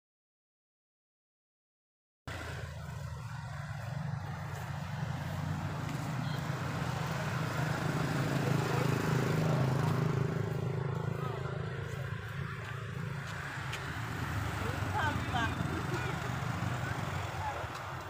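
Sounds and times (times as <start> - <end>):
low vehicle engine hum: 2.3 - 18.0.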